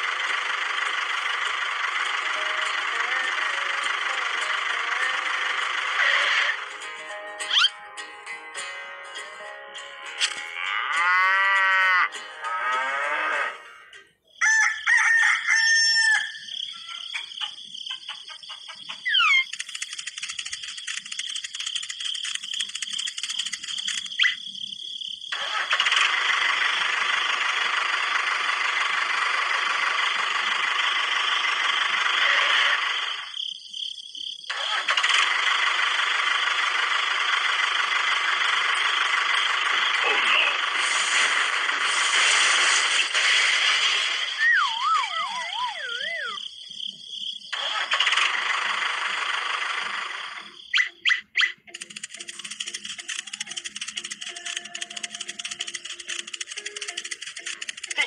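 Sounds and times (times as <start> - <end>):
toy motor whirring: 1.0 - 6.8, 7.4 - 7.7, 19.0 - 24.6, 25.3 - 33.4, 34.5 - 46.5, 47.5 - 58.0
rooster crowing: 14.4 - 16.6.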